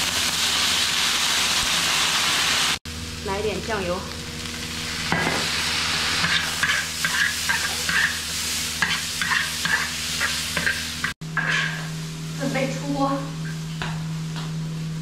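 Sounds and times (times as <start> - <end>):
food sizzling in a wok: 0.0 - 13.8
spatula scraping a wok: 5.0 - 12.0.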